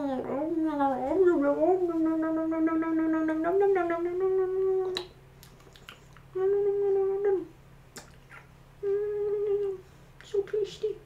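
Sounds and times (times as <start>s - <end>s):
woman humming: 0.0s - 5.2s, 6.3s - 7.6s, 8.8s - 11.0s
kissing smacks: 4.8s - 6.4s, 7.9s - 8.6s.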